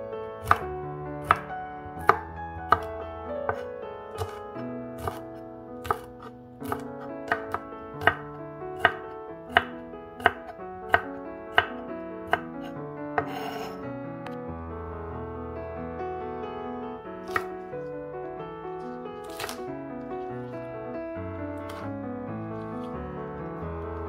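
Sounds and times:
soft piano music: 0.0 - 24.0
knife chopping on wooden board: 0.4 - 2.9, 3.5 - 4.4, 5.0 - 5.2, 5.8 - 13.8, 17.3 - 17.5, 19.2 - 19.6, 21.7 - 21.9.

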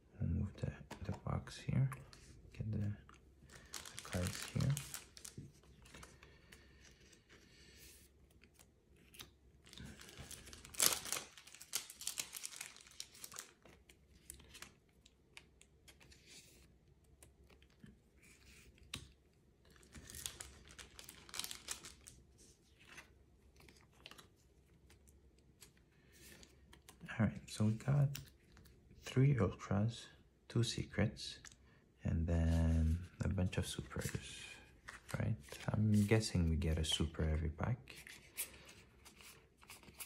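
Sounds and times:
cards rustling and scraping: 32.5 - 36.4, 37.9 - 40.0.

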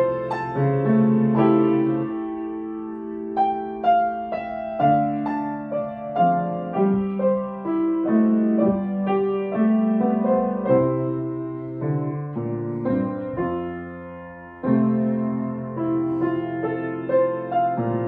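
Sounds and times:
slow gentle piano piece: 0.0 - 18.0.

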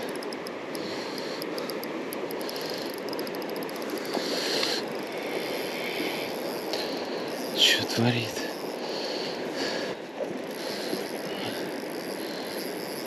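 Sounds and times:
faint rapid clicking: 0.0 - 8.7
river water rushing: 0.0 - 12.8.

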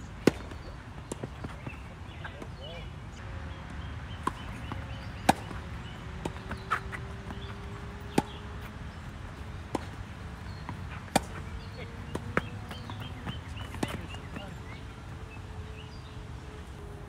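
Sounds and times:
tennis ball bouncing on court: 0.2 - 2.6, 4.1 - 14.9
racket striking tennis ball: 4.2 - 5.6, 6.2 - 8.4, 9.6 - 14.2.

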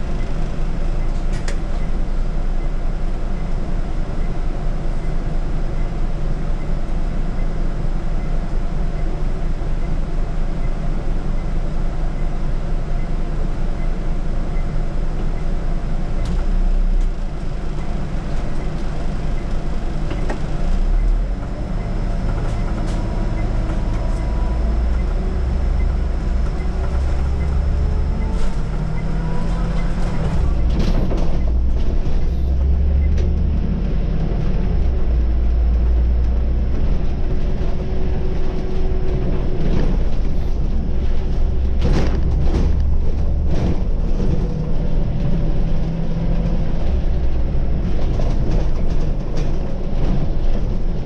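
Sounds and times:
bus engine low rumble: 0.0 - 51.0.

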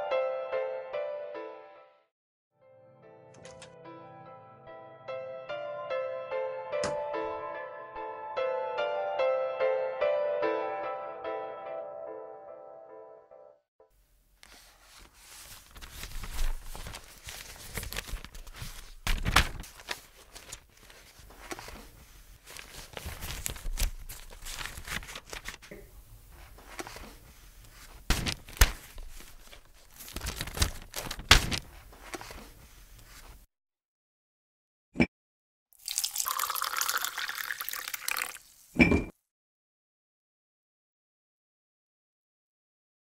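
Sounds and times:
paper rustling and crinkling: 14.4 - 33.5.

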